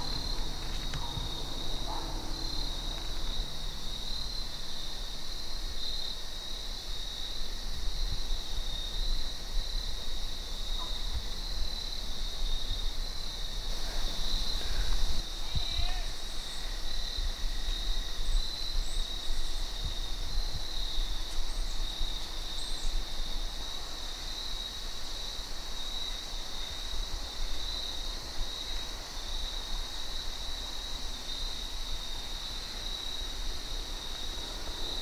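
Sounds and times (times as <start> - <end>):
low microphone rumble: 0.0 - 5.8
insect chorus trilling: 0.0 - 35.0.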